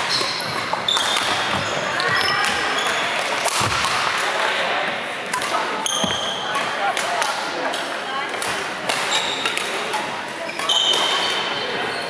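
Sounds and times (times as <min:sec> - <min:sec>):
racket striking shuttlecock: 0:00.0 - 0:01.6
shoe squeaks: 0:00.0 - 0:03.2, 0:05.8 - 0:06.6, 0:09.1 - 0:12.0
murmur of voices: 0:00.0 - 0:12.0.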